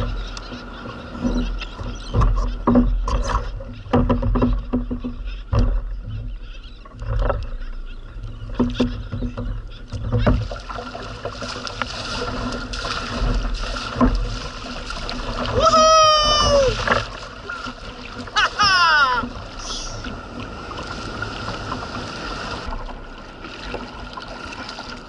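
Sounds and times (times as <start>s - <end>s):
water rushing along hull: 0.0s - 25.0s.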